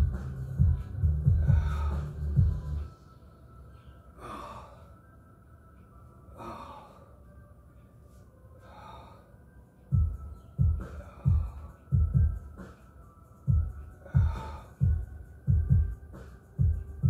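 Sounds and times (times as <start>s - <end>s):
loud low thumps: 0.0s - 2.7s
man breathing heavily: 0.0s - 2.9s, 3.8s - 5.2s, 6.2s - 7.4s, 8.0s - 16.1s.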